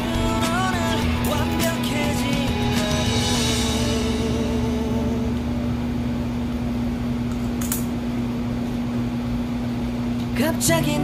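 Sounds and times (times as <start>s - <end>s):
music: 0.0s - 6.0s, 10.4s - 11.0s
steady low hum: 0.0s - 11.0s.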